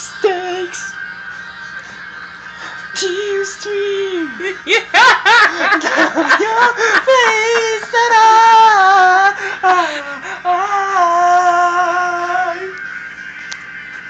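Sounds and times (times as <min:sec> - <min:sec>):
man singing long held notes: 0:02.9 - 0:04.7, 0:06.2 - 0:12.8.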